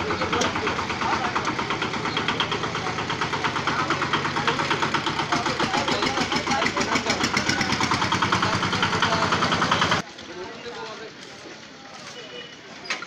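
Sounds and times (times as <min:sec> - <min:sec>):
diesel engine chugging: 0:00.0 - 0:10.1.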